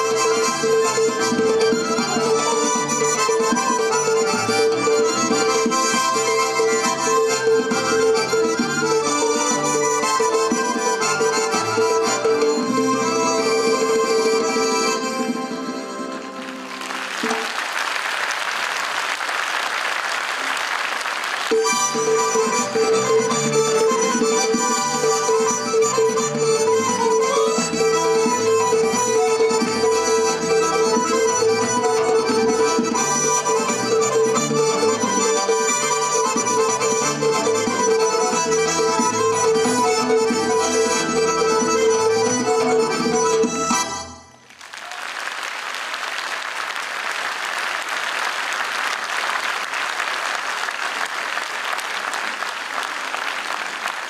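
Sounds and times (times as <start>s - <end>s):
accordion folk dance music: 0.0s - 44.6s, 46.1s - 54.0s
audience applauding: 16.2s - 22.8s, 44.4s - 54.0s.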